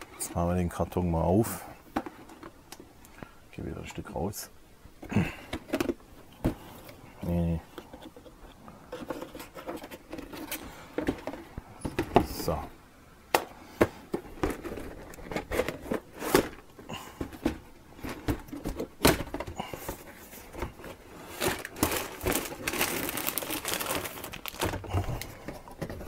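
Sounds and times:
crinkling: 5.0s - 12.6s, 13.9s - 26.0s.

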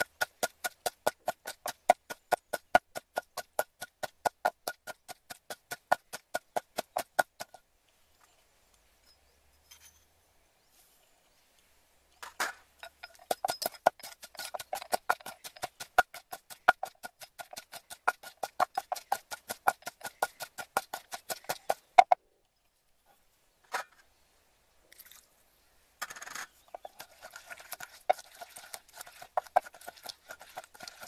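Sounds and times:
pestle pounding in a mortar: 0.0s - 7.6s, 12.8s - 22.2s, 26.7s - 31.0s.

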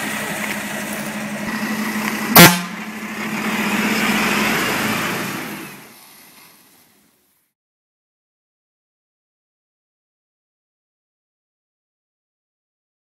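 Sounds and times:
diesel engine idling: 0.0s - 6.0s
loud truck horn toot: 1.4s - 5.3s.

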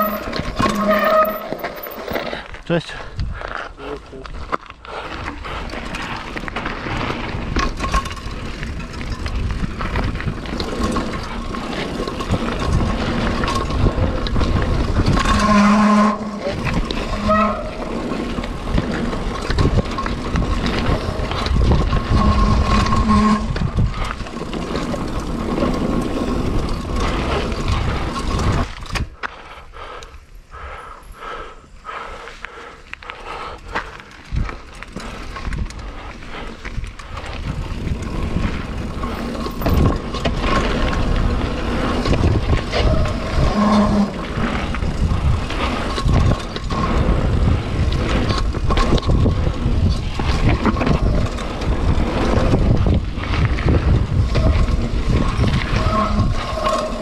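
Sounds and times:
bike rattling: 0.0s - 57.0s
bike tyre noise: 0.0s - 57.0s
wind on microphone: 8.4s - 29.2s, 35.4s - 57.0s.

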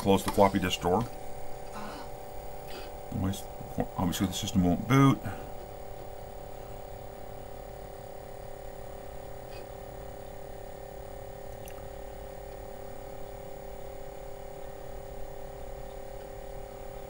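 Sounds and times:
floppy drive whirring hum: 0.0s - 17.0s
faint drive clicks: 15.8s - 17.0s.

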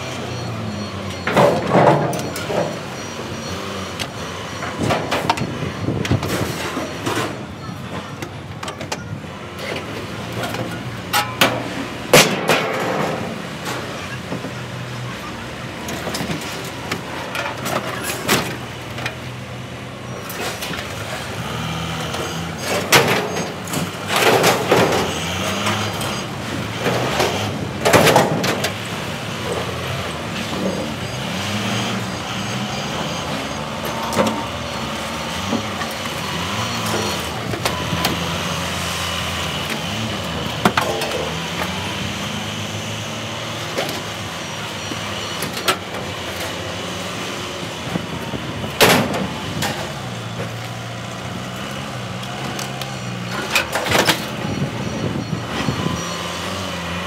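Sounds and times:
forklift and vehicle engines running: 0.0s - 57.0s
scrap metal clanks and bangs: 1.1s - 3.6s, 9.6s - 14.6s, 22.0s - 31.0s.

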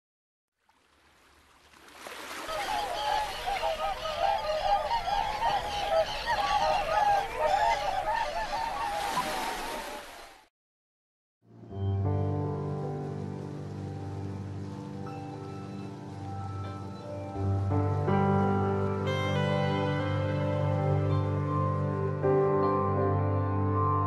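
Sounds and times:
geese honking: 2.4s - 10.0s.

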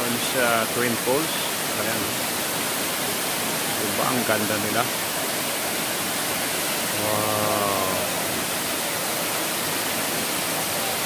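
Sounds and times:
waterfall rushing into pool: 0.0s - 11.0s
person's voice: 7.0s - 8.2s.

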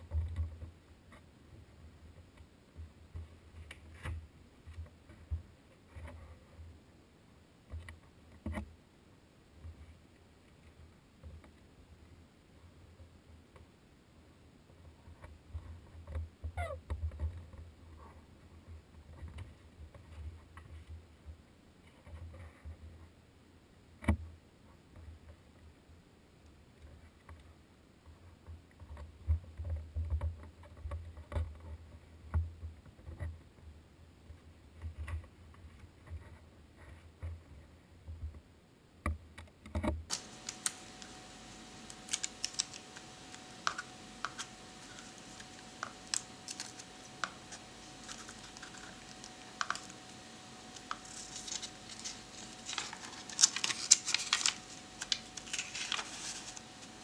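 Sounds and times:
faint steady hum: 0.0s - 57.0s
crisp clicks: 40.1s - 57.0s
paper rustling: 40.1s - 57.0s.

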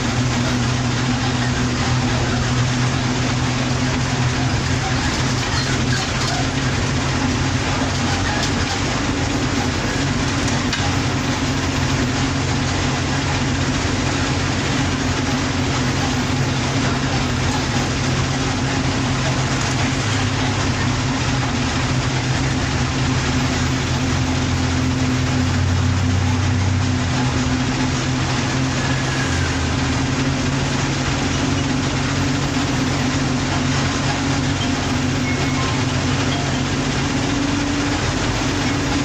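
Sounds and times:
bus engine running: 0.0s - 39.0s
tyres on road: 0.0s - 39.0s.

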